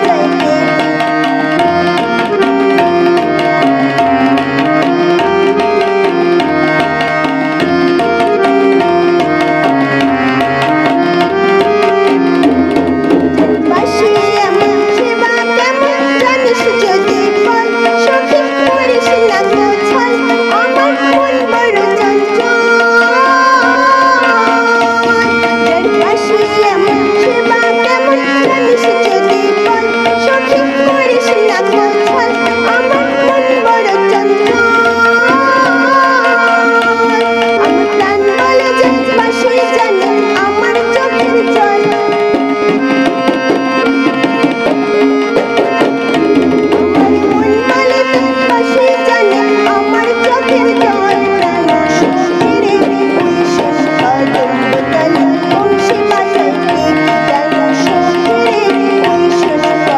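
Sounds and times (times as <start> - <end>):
woman singing: 0.0 - 3.6, 13.6 - 42.4, 46.3 - 59.9
harmonium chords: 0.0 - 59.9
tabla drumming: 0.0 - 59.9.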